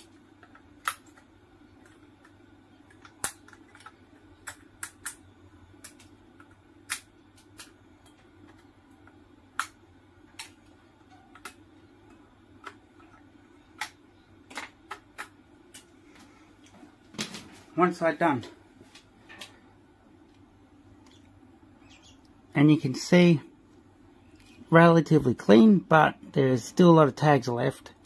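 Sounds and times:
faint steady hum: 0:00.0 - 0:28.0
sharp metallic clicks and snaps: 0:00.5 - 0:08.6.

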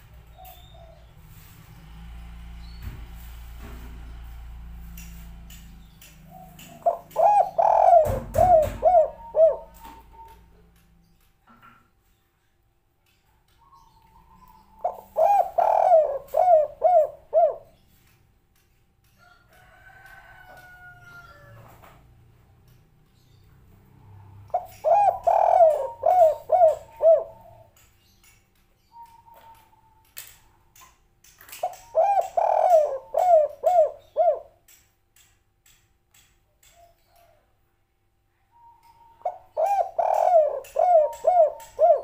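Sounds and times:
dove cooing: 0:06.2 - 0:10.5, 0:14.2 - 0:17.8, 0:24.5 - 0:27.7, 0:31.6 - 0:34.6, 0:38.6 - 0:42.0.

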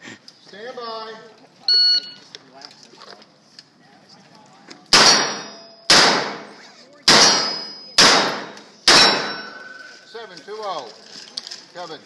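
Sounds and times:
steel plate target clanging: 0:05.0 - 0:10.0.

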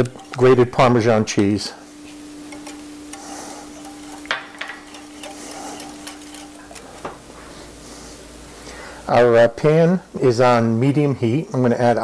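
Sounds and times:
whisk scraping a bowl: 0:00.0 - 0:07.8
faint steady hum: 0:00.0 - 0:12.0.

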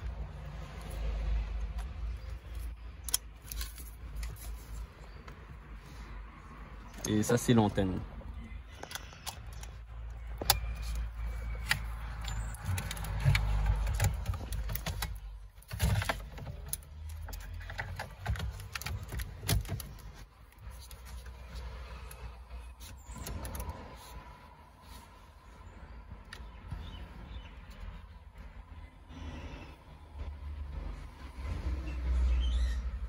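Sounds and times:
rumbling handling noise: 0:08.6 - 0:29.5
plastic connectors clicking: 0:08.7 - 0:21.3.

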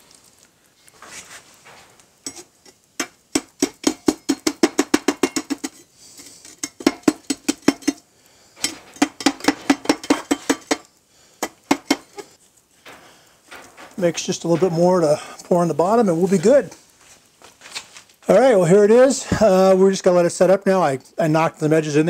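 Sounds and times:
steel bar tapping metallic clinks: 0:02.2 - 0:05.8, 0:06.4 - 0:08.0, 0:08.6 - 0:12.3.

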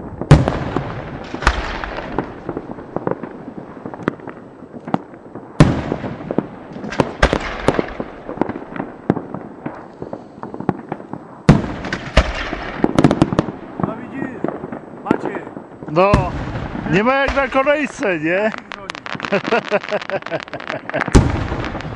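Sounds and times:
fireworks bangs: 0:00.0 - 0:21.9
fireworks popping and crackling: 0:00.0 - 0:21.9.

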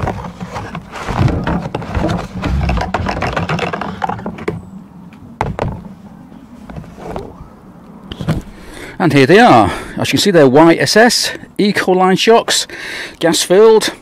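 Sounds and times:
cardboard box rustling and scraping: 0:00.0 - 0:04.5, 0:06.6 - 0:07.4.

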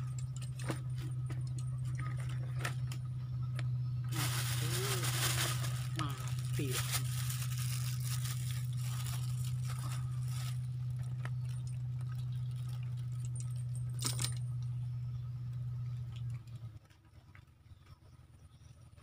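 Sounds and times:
low machine hum: 0:00.0 - 0:19.0
rustling: 0:04.1 - 0:11.2.

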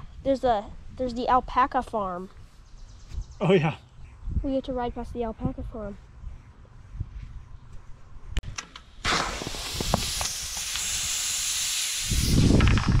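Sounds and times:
gas inflator hissing: 0:09.0 - 0:13.0.

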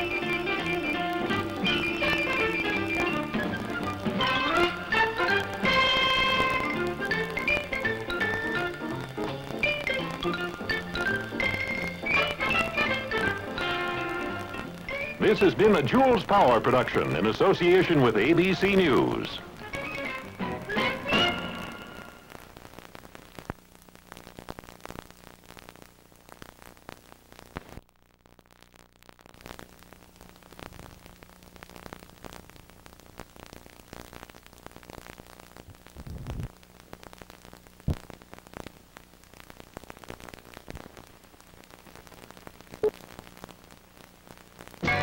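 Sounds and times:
film soundtrack crackle and hiss: 0:00.0 - 0:45.0
faint steady hum: 0:21.4 - 0:45.0
sharp pops: 0:37.2 - 0:38.8.

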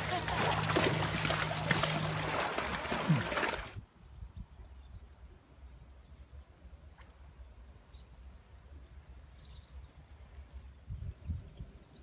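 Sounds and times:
wind rumble on microphone: 0:10.4 - 0:12.0.

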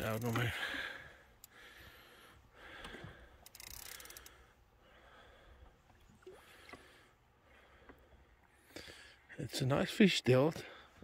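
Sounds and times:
fishing reel clicks: 0:00.0 - 0:00.6, 0:03.4 - 0:04.4
fishing rod handling noise: 0:00.0 - 0:00.6, 0:02.8 - 0:04.4.

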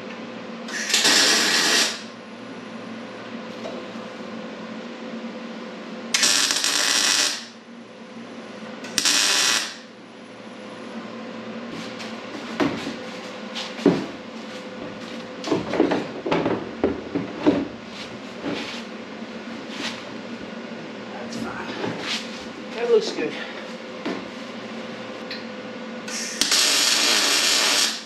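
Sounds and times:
welding hiss: 0:00.7 - 0:02.1, 0:06.2 - 0:07.5, 0:09.0 - 0:09.8, 0:26.1 - 0:28.0.

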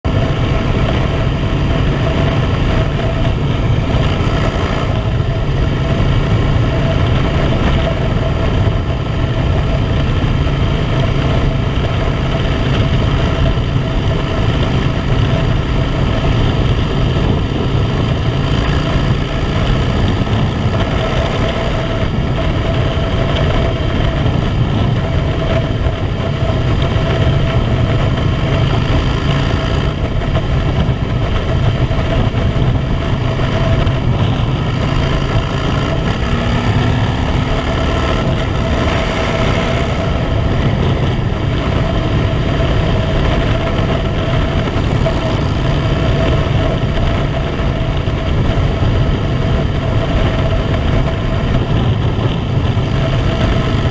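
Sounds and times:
motorcycle engine cruising: 0:00.0 - 0:53.9
road noise: 0:00.0 - 0:53.9
wind rushing: 0:00.0 - 0:53.9.

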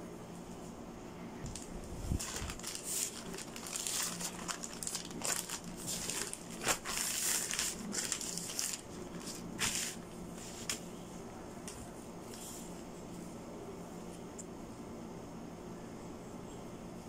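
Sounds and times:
plastic bags crinkling: 0:01.5 - 0:10.1.

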